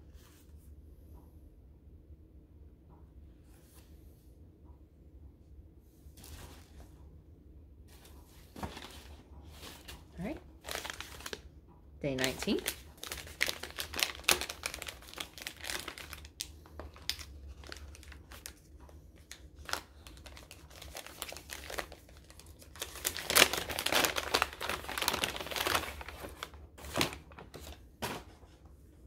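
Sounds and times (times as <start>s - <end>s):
wrapping paper rustling: 7.9s - 28.6s.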